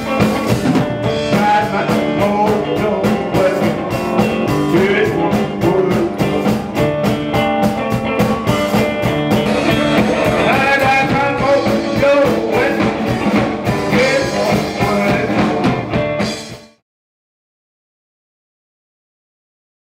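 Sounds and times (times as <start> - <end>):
man singing: 0.0 - 6.8, 9.6 - 15.8
steady beat: 0.0 - 16.6
electric guitar: 0.0 - 16.8.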